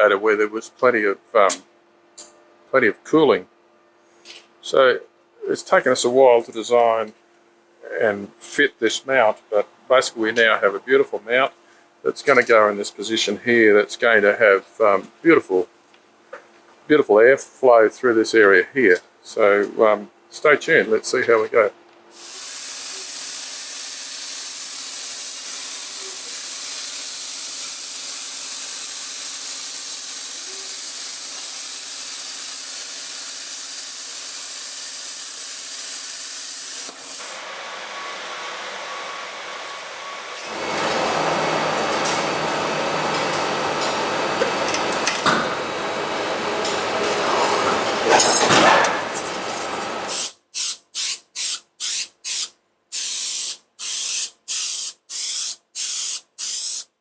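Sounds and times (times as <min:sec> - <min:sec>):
workshop machine noise: 0:00.0 - 0:56.9
aerosol spray can bursts: 0:22.2 - 0:37.4, 0:50.1 - 0:56.9
cutting torch hissing: 0:22.2 - 0:37.5.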